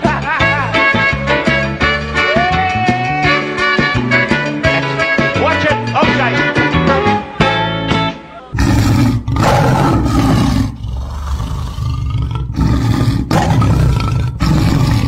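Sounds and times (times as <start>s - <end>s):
music: 0.0s - 10.1s
loud deep roar: 8.6s - 15.0s.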